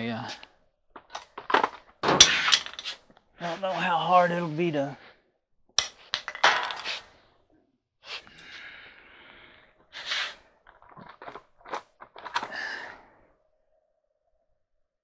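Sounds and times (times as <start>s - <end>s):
clicks and knocks of small parts: 1.0s - 3.0s, 5.8s - 6.9s.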